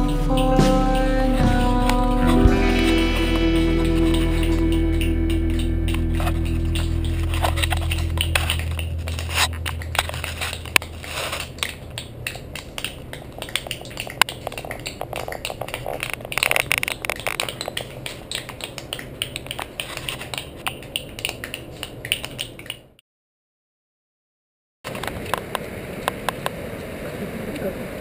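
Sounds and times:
background music: 0.0s - 9.5s
sharp clicks and crackles: 4.1s - 22.9s.

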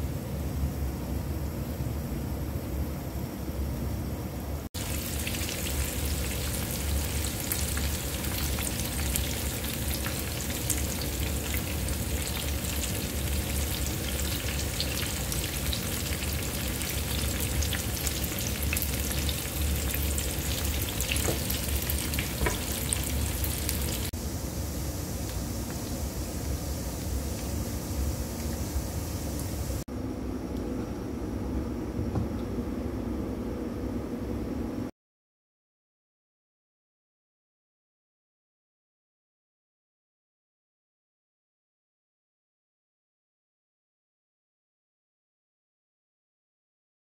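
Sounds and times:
vegetables sizzling in oil: 4.8s - 29.8s.

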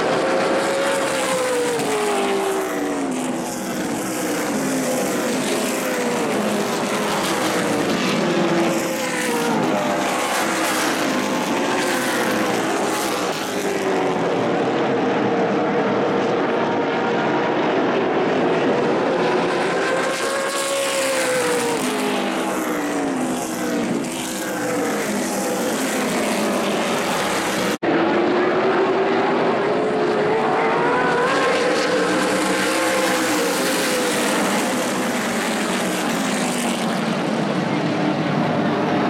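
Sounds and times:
race car engines passing: 0.0s - 39.0s.

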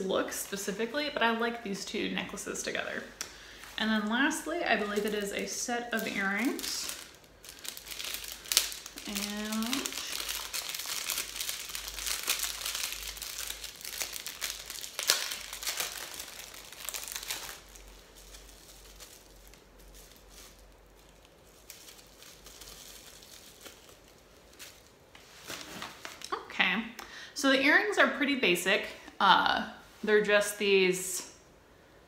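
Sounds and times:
packaging crinkling: 3.0s - 26.4s.

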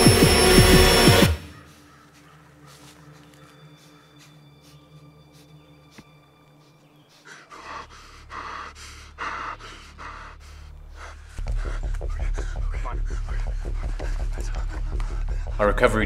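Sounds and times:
low music drone: 0.0s - 16.0s
man gasping and breathing hard: 7.0s - 15.6s.

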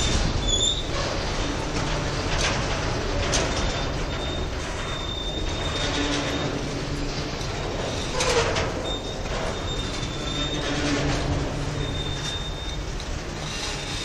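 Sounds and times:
steel wheels rumbling on rail: 0.0s - 14.0s
high wheel squeal: 4.2s - 6.9s, 7.6s - 12.8s.

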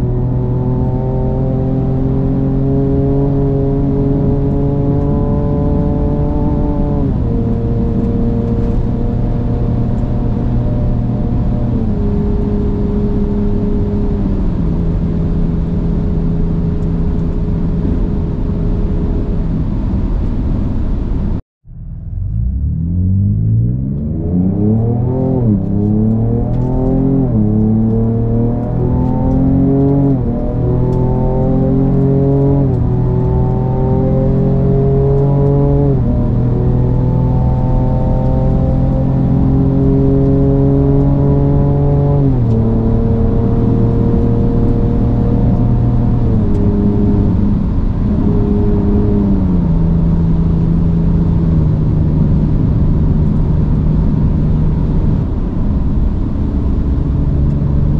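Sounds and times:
engine accelerating hard: 0.0s - 57.9s.

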